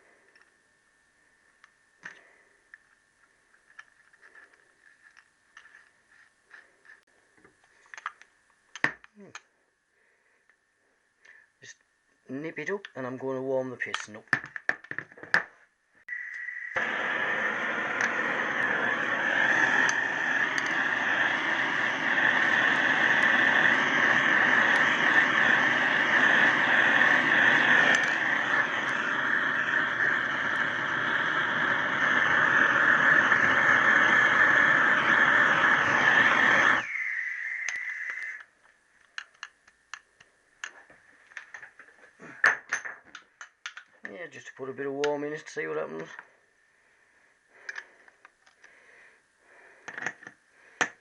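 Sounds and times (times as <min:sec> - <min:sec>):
thin high hiss: 0:16.0 - 0:39.0
heat gun blowing: 0:16.1 - 0:38.5.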